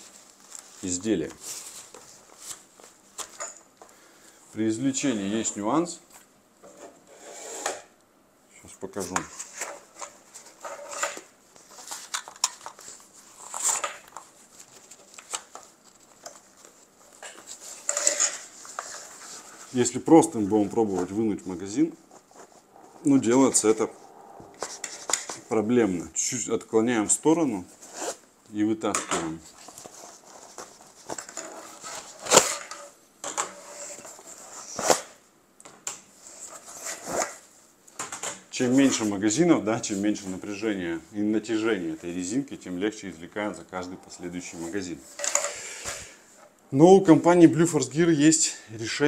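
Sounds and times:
scraping rustle: 9.0s - 25.7s.

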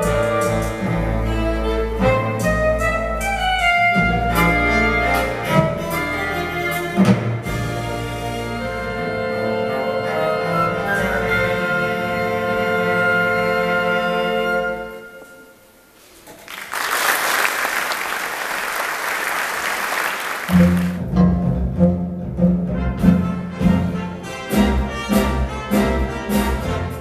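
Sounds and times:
tango orchestra playing: 0.0s - 15.7s, 20.2s - 27.0s
audience applause: 16.4s - 21.0s.

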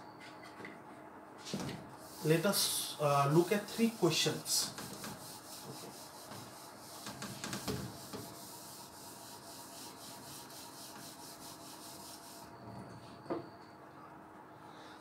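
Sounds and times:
eraser scrubbing a whiteboard: 2.0s - 12.5s.

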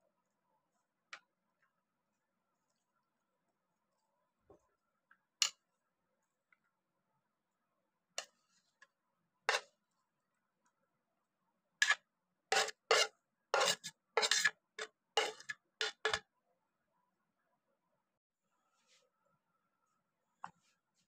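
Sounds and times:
metal spoon scraping ceramic dish: 11.8s - 16.2s.

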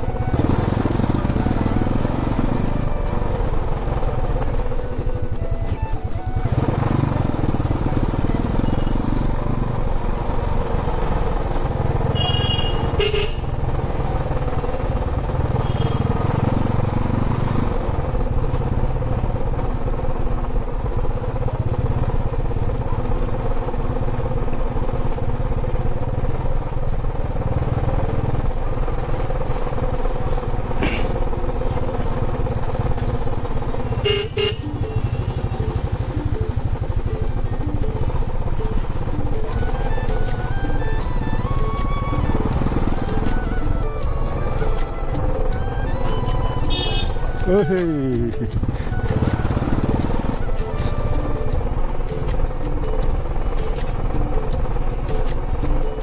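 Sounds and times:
motorcycle engine running: 0.0s - 56.0s
horn honks: 12.0s - 13.7s, 15.5s - 16.4s, 33.8s - 35.6s, 46.6s - 47.4s.

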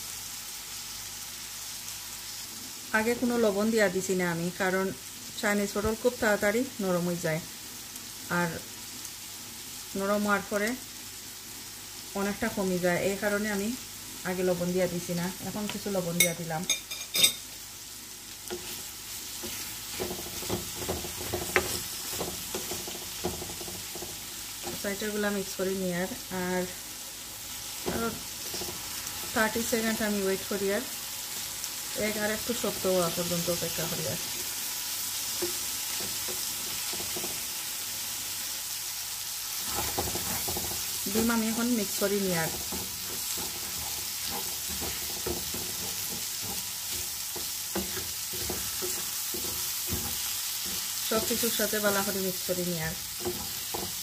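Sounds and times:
food sizzling in frying pan: 0.0s - 54.0s
wooden spatula scraping pan: 18.5s - 24.9s, 39.6s - 52.1s, 53.1s - 54.0s.

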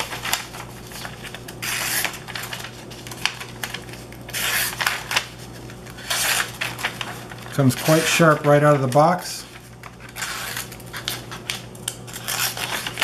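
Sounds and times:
knife slicing paper: 0.0s - 9.1s, 10.1s - 11.5s, 12.1s - 13.0s
paper crackle and rustle: 0.0s - 13.0s.

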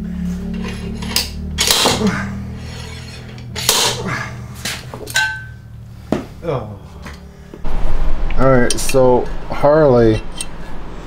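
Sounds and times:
steady low hum: 0.0s - 11.0s
metal tools clanking: 0.5s - 5.7s, 10.0s - 10.6s.

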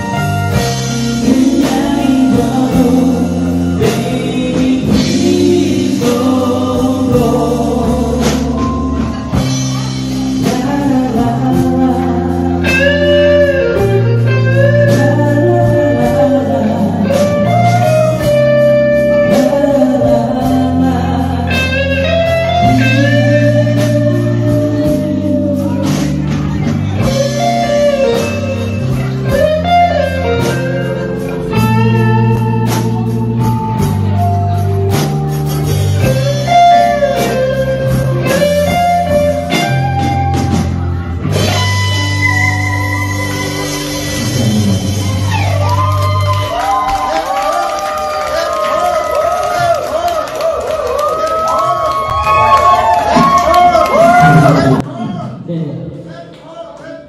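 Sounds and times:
electric guitars: 0.0s - 54.9s
drums: 0.0s - 55.4s
bass guitar: 0.0s - 55.7s
man singing: 1.0s - 9.4s, 10.2s - 29.4s.

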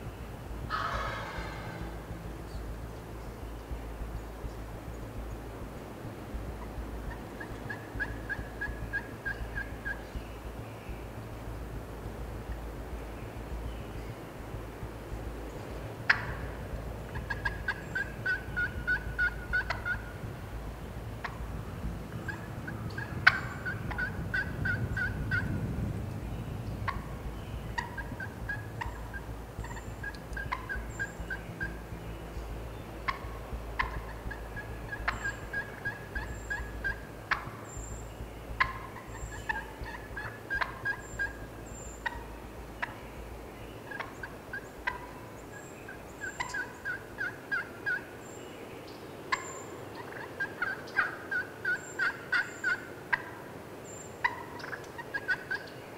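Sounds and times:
turkey calling: 0.7s - 2.7s, 6.6s - 10.4s, 15.6s - 20.2s, 22.1s - 25.5s, 26.9s - 31.9s, 33.0s - 48.1s, 49.3s - 55.8s.

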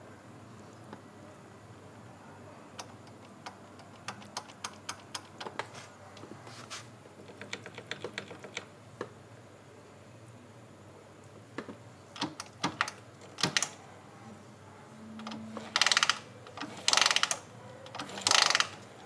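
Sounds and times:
ratchet ratcheting: 15.2s - 18.8s.

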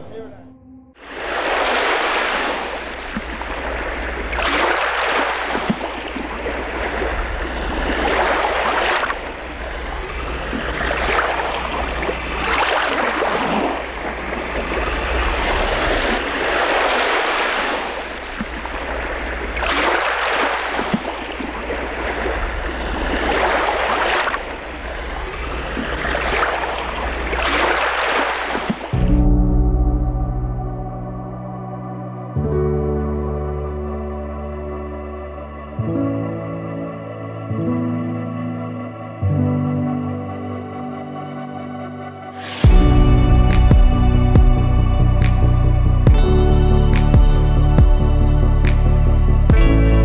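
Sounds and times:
low rumble: 0.0s - 1.7s, 29.0s - 32.4s, 42.6s - 50.0s
sea surf washing onto shore: 1.0s - 29.0s, 42.3s - 44.0s.

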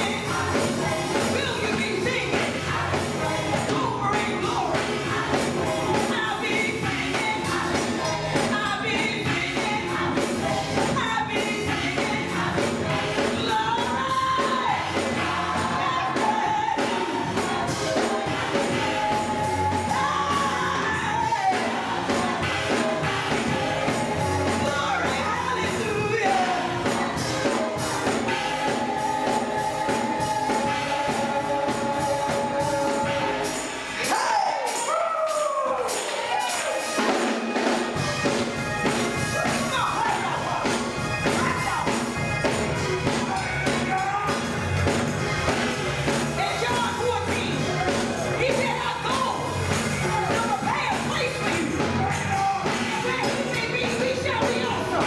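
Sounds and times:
lead singer singing: 0.0s - 34.7s
choir singing: 0.0s - 35.0s, 35.7s - 42.2s.

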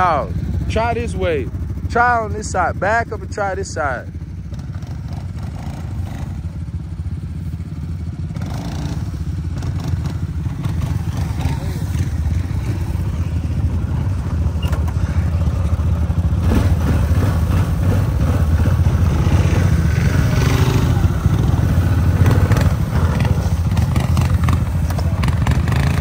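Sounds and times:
quad bike engine revving: 0.0s - 26.0s.

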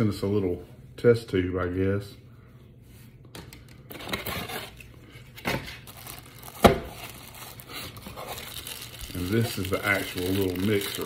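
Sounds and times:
plastic packaging rustling: 3.9s - 11.0s.

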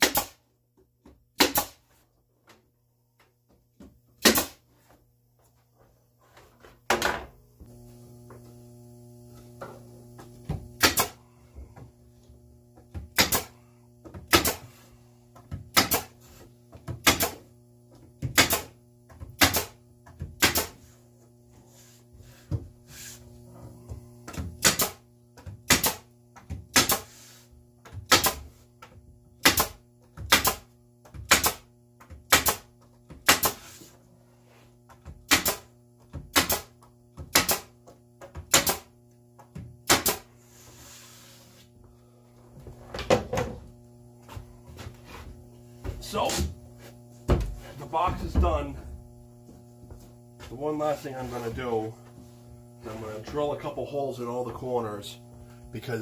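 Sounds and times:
nail gun shots: 0.0s - 0.4s, 1.4s - 1.8s, 4.2s - 4.6s, 10.8s - 11.2s, 13.1s - 13.5s, 14.3s - 14.6s, 15.7s - 16.1s, 17.0s - 17.4s, 18.3s - 18.8s, 19.4s - 19.8s, 20.4s - 20.8s, 24.6s - 25.0s, 25.7s - 26.1s, 26.7s - 27.1s, 28.1s - 28.4s, 29.4s - 31.7s, 32.3s - 33.6s, 35.3s - 35.7s, 36.3s - 36.7s, 37.3s - 37.7s, 38.5s - 38.9s, 39.8s - 40.3s.

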